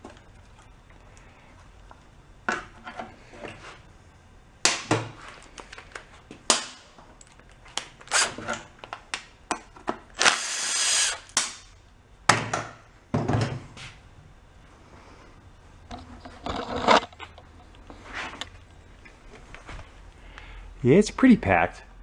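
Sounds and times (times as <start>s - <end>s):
cordless power driver: 8.0s - 8.5s, 10.2s - 11.4s.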